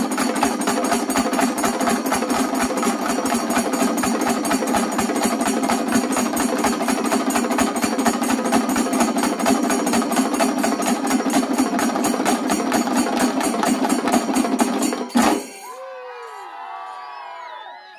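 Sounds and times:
drums and cymbals fast rhythm: 0.0 - 15.8
crowd whooping and cheering: 15.1 - 17.9.

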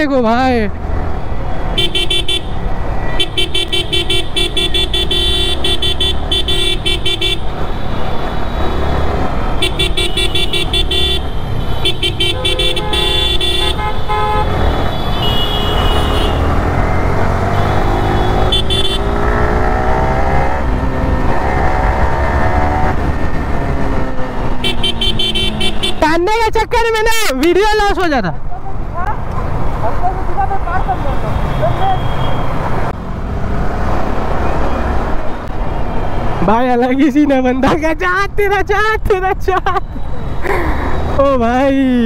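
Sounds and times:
vehicle horns honking: 1.7 - 16.6, 17.4 - 20.2, 24.6 - 26.2, 30.7 - 32.7
motorcycle engine: 3.3 - 26.0.

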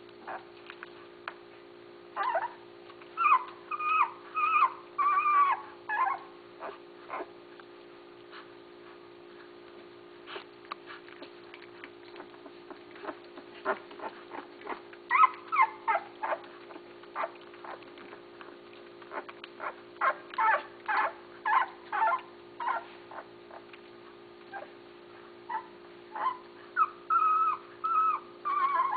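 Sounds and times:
steady low hum: 0.0 - 28.9
puppies whimpering and squealing: 0.2 - 0.5, 2.2 - 2.6, 3.2 - 7.4, 11.5 - 18.2, 19.1 - 23.7, 25.5 - 28.9.

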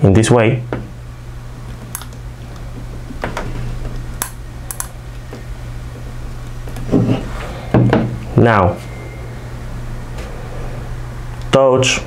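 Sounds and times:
steady low hum: 0.0 - 12.0
wire leads clicking into outlet: 1.7 - 2.7, 4.2 - 5.0.

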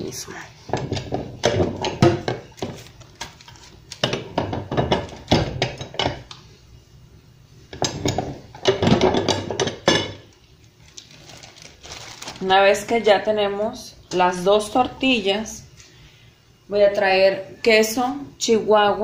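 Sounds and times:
tortilla press metal knocks: 0.7 - 2.8, 4.0 - 6.3, 7.7 - 10.3.

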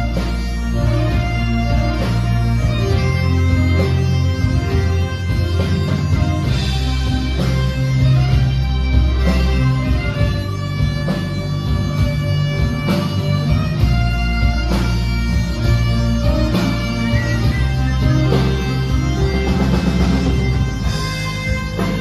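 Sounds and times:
bagpipes: 0.0 - 22.0
drums: 0.0 - 22.0
electric guitar: 0.0 - 22.0
rock band playing live: 0.0 - 22.0.

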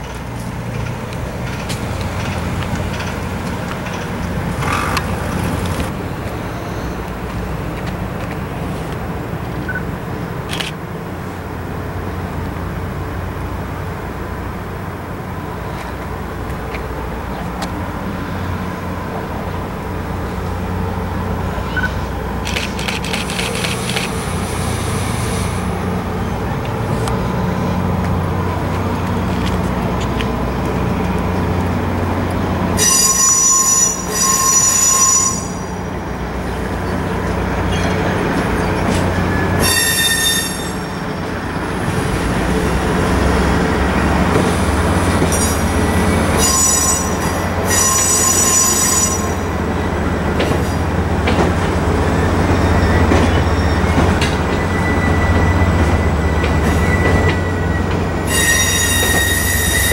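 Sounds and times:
diesel locomotive rumble: 0.0 - 59.9
train wheels squealing: 6.4 - 7.1, 32.8 - 41.7, 45.2 - 50.9, 52.0 - 59.9.

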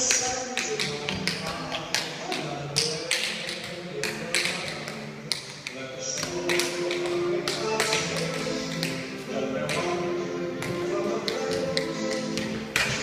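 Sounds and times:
background music: 0.0 - 13.0
tap shoes on floor: 0.0 - 13.0.

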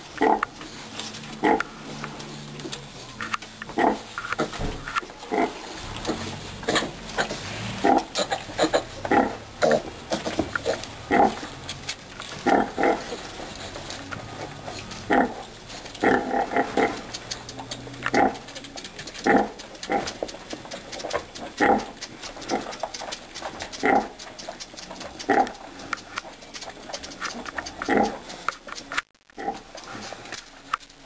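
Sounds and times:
sow grunting: 5.2 - 11.5, 12.3 - 28.4.

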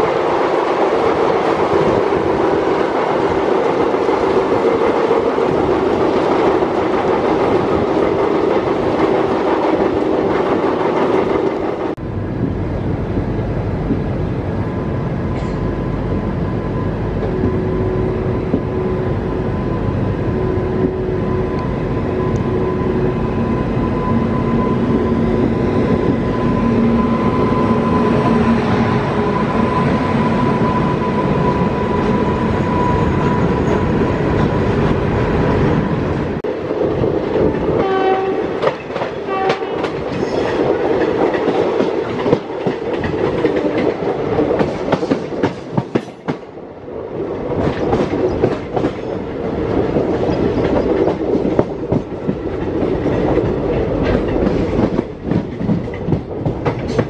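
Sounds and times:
train rumble: 0.0 - 57.0
train horn blasts: 37.8 - 38.5, 39.2 - 39.9.

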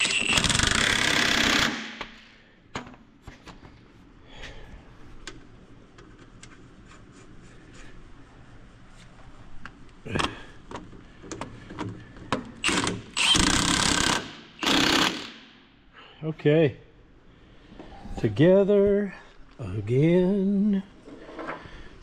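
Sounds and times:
impact wrench bursts: 0.0 - 2.4, 12.6 - 15.6.

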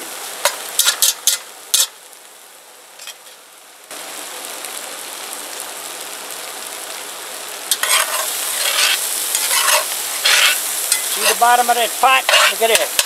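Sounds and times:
food sizzling in a pot: 0.0 - 13.0
spatula scraping a pot: 7.7 - 11.4, 12.3 - 13.0.

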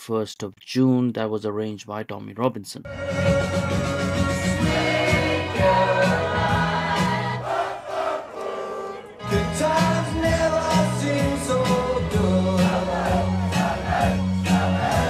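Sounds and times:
choir singing: 2.9 - 10.0, 11.8 - 15.0.

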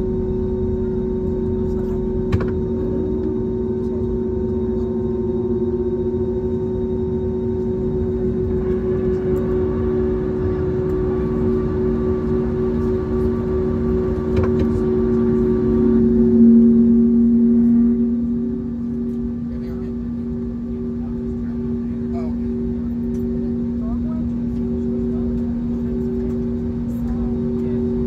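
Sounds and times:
jet engines droning in cabin: 0.0 - 28.0.

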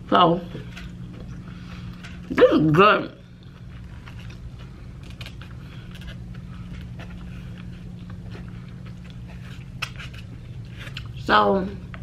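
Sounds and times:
steady low hum: 0.0 - 12.0
person chewing: 3.2 - 11.2.

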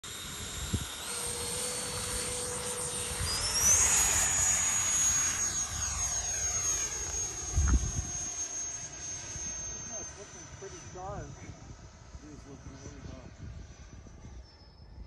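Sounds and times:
electric ducted fan whining: 0.0 - 14.6.

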